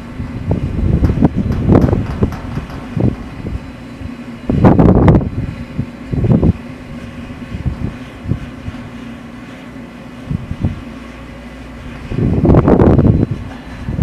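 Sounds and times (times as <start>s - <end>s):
machinery humming: 0.0s - 14.0s
wind buffeting microphone: 0.0s - 14.0s.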